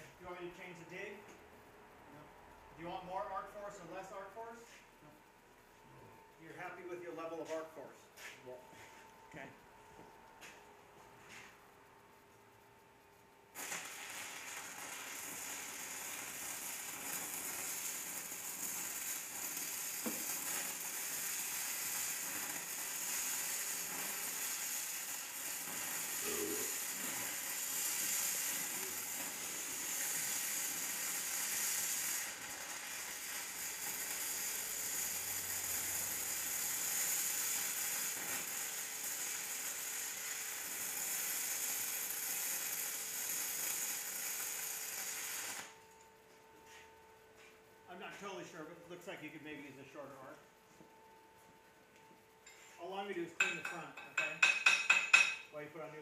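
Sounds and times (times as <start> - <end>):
welding arc burning: 13.5 - 45.9.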